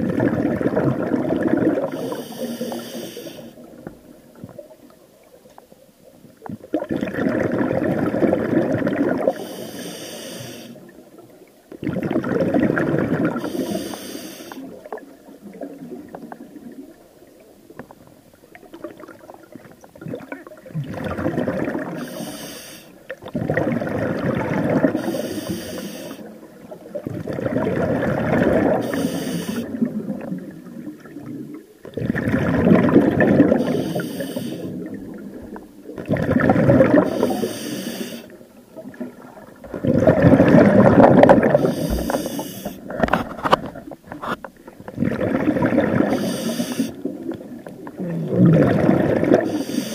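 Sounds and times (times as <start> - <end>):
diver exhaling bubbles: 0.0 - 3.8, 6.5 - 10.9, 11.8 - 16.8, 20.0 - 22.6, 23.2 - 38.4, 39.0 - 49.9
regulator high hiss: 13.5 - 14.6, 22.0 - 22.9, 28.8 - 29.7, 33.6 - 34.7, 37.1 - 38.3, 41.6 - 42.8, 46.2 - 47.0, 49.5 - 49.9.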